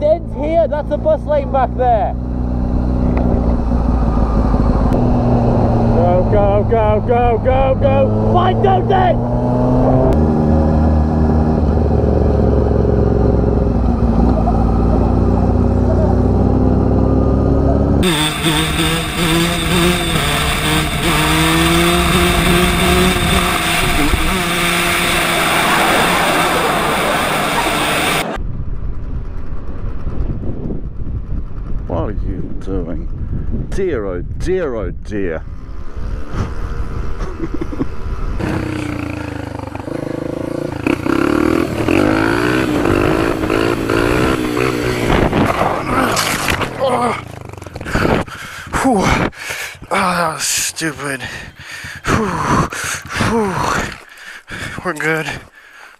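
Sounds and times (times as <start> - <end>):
street traffic: 0.0 - 31.9, 35.2 - 55.9
motorcycle engine: 0.0 - 33.6, 35.4 - 49.0, 49.7 - 55.4
wind rush: 2.4 - 8.5, 17.2 - 39.0, 39.6 - 46.8, 47.7 - 49.9.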